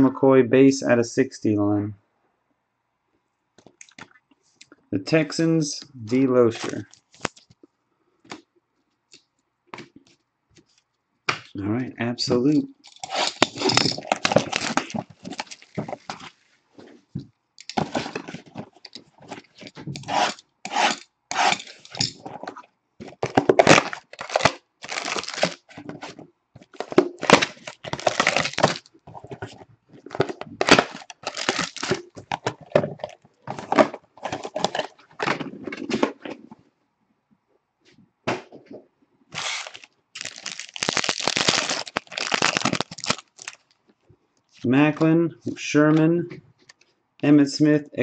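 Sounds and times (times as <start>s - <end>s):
plastic wrap tearing and crinkling: 12.9s - 16.3s, 23.1s - 35.4s, 39.3s - 43.8s.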